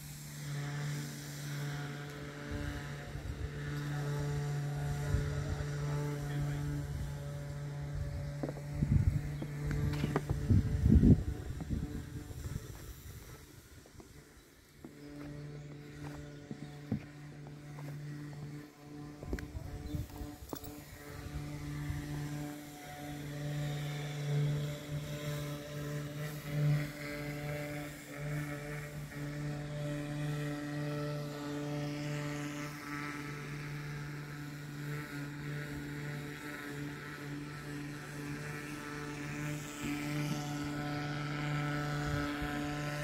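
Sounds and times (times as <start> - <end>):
motor running steadily: 0.0 - 43.0
low droning background music: 14.6 - 43.0.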